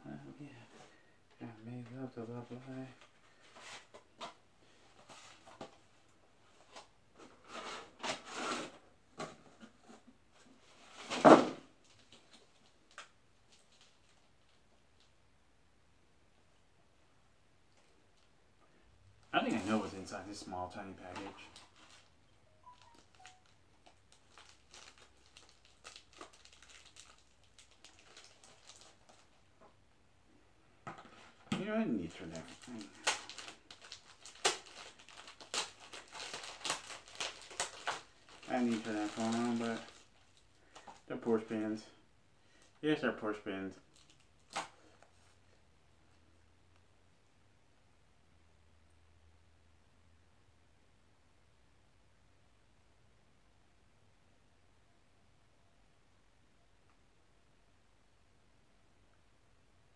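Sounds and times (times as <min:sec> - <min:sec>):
packaging rustling: 0:19.3 - 0:29.5, 0:31.0 - 0:41.1.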